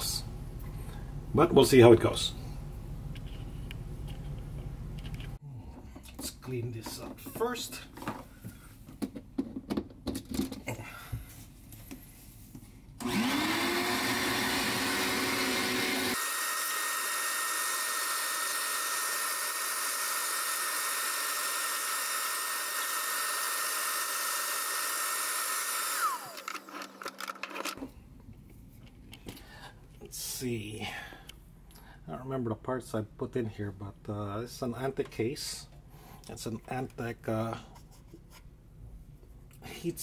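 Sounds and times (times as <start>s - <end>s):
shop vacuum whining: 13.0s - 27.9s.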